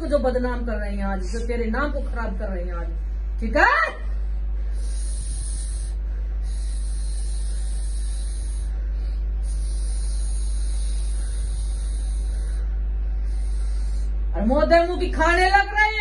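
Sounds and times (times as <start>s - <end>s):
low hum: 0.0s - 16.0s
high airy hiss: 4.6s - 15.1s.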